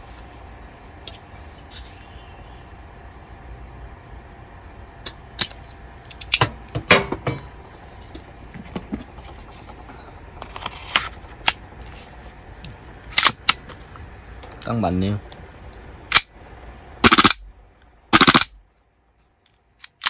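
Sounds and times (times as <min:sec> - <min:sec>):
pistol parts clicking and clacking: 0:17.1 - 0:17.4, 0:18.2 - 0:18.6, 0:19.8 - 0:20.0.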